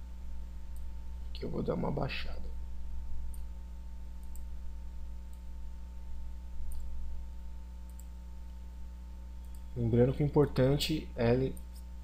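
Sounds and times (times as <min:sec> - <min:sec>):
low electrical hum: 0:00.0 - 0:12.0
computer mouse clicks: 0:04.2 - 0:04.5, 0:06.7 - 0:06.9, 0:07.9 - 0:08.1.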